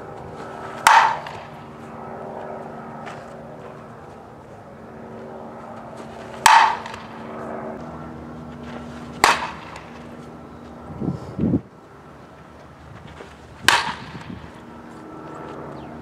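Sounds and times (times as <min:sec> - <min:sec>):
steady low hum: 0:00.0 - 0:16.0
bat striking softball: 0:00.8 - 0:01.6, 0:06.3 - 0:07.2, 0:09.0 - 0:10.1, 0:13.6 - 0:14.5.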